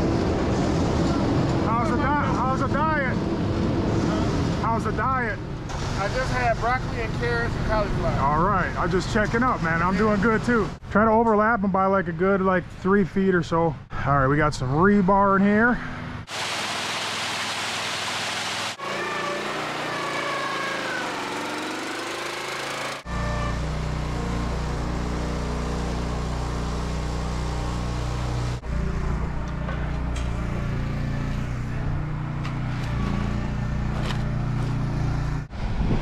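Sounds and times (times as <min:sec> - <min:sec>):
loud hiss: 0:16.3 - 0:18.8
small engine running: 0:16.9 - 0:28.9.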